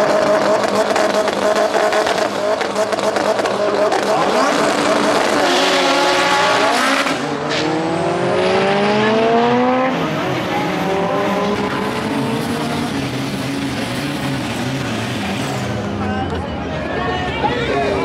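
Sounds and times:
racing car engines revving: 0.0 - 18.0.

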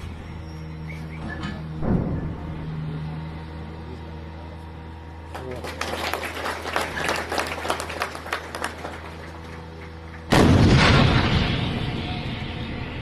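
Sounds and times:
low steady hum: 0.0 - 13.0
howitzer firing boom: 10.3 - 13.0.

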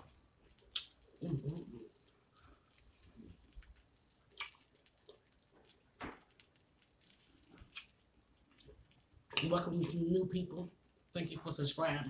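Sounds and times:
wet chewing clicks: 0.0 - 11.2.

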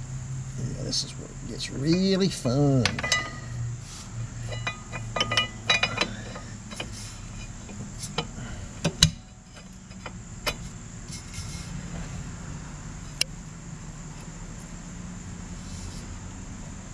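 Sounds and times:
metal parts clicking and clinking: 1.8 - 3.5, 4.4 - 10.6.

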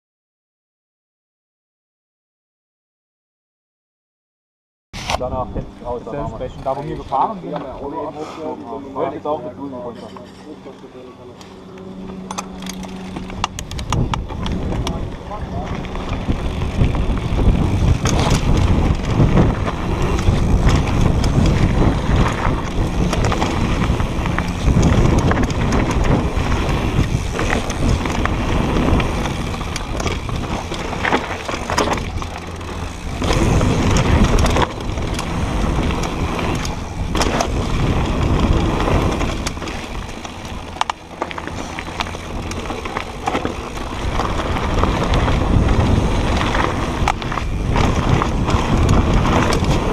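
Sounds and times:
bike rattling and knocking: 11.5 - 49.9
tyres rumbling over dirt and stones: 12.5 - 49.9.

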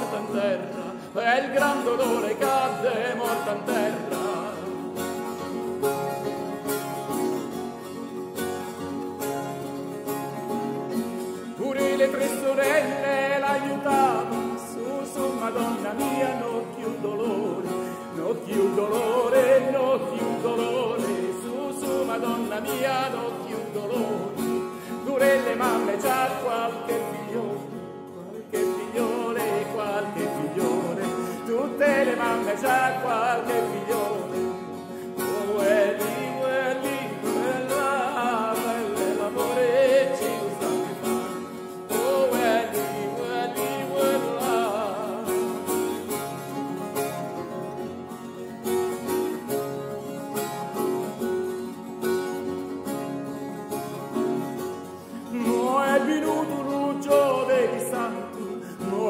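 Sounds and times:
tenor singing: 0.0 - 6.7, 11.0 - 47.1, 55.0 - 59.0
strummed guitar: 0.0 - 59.0.

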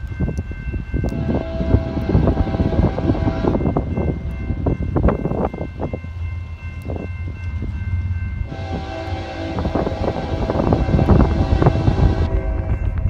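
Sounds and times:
wind rumble on microphone: 0.0 - 13.0
diesel locomotive air horn: 1.1 - 4.3, 8.5 - 13.0.

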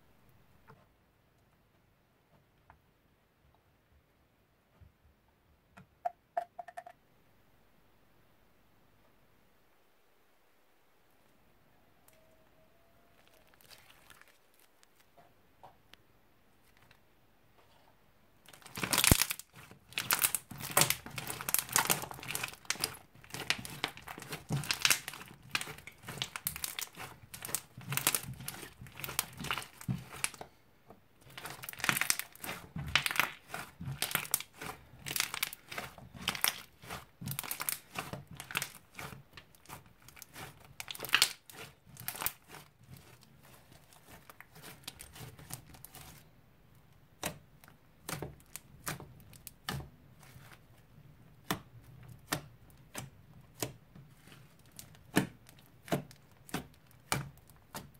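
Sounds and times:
slime crackling and popping: 13.2 - 15.1, 18.4 - 30.5, 31.2 - 46.3, 47.0 - 57.9.

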